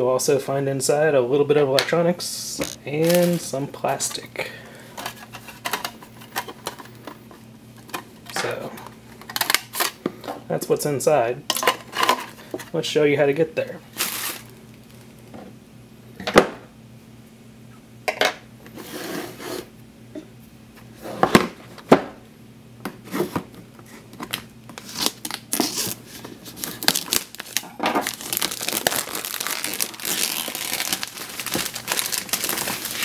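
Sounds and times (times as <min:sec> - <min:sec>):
plastic bag crinkling: 0:02.6 - 0:03.5, 0:13.8 - 0:15.3, 0:24.8 - 0:33.0.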